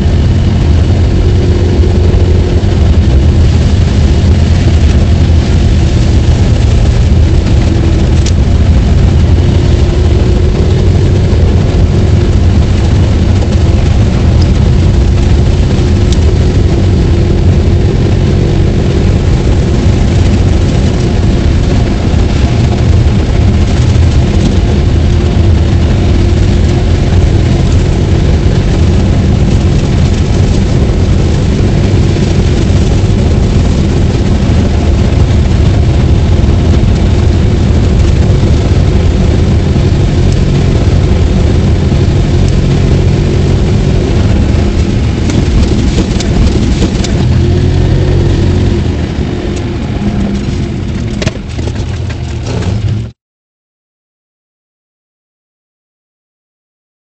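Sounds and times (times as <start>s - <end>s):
diesel engine running under load: 0.0s - 53.2s.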